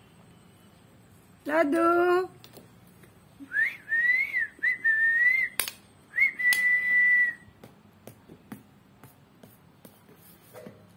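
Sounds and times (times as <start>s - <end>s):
person whistling: 3.4s - 7.5s.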